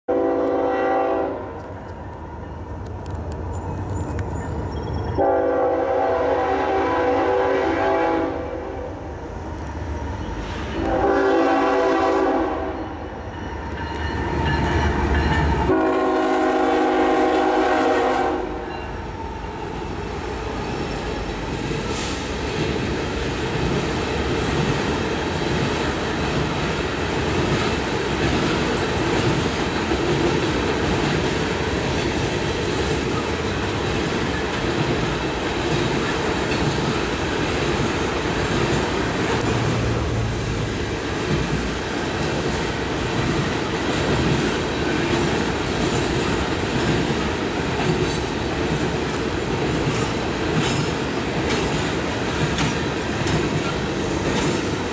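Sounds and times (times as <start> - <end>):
locomotive horn blasts: 0.1 - 1.6, 5.2 - 8.9, 10.8 - 13.0, 15.7 - 18.7
freight train rumbling past: 0.1 - 54.9.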